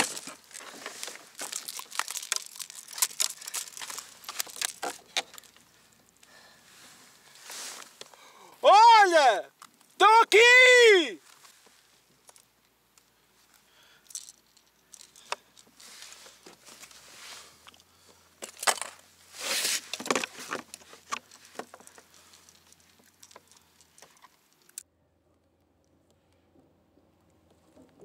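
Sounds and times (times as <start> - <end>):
gloved hands rustling against fish: 0.0 - 8.1
metallic rattle of lure hooks: 13.9 - 15.8, 20.7 - 24.8.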